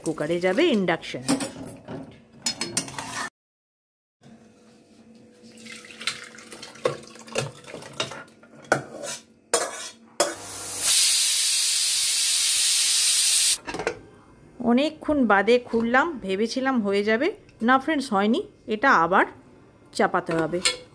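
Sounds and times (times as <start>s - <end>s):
metal spatula scraping a pot: 2.6s - 3.3s, 8.7s - 10.0s
pressure cooker steam hissing: 10.4s - 13.6s.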